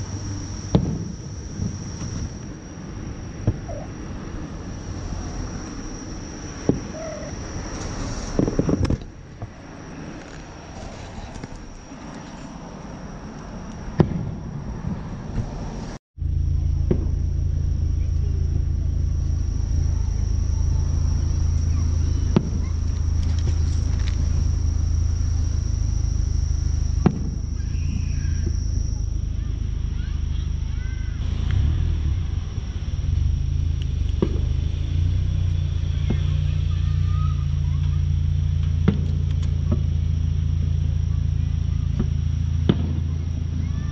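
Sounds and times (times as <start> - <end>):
distant fireworks bangs: 0.0 - 10.2, 13.8 - 15.8, 16.7 - 17.4, 19.7 - 33.3, 33.9 - 35.3, 41.8 - 43.6
insects droning: 0.0 - 43.9
low rumble: 0.0 - 43.9.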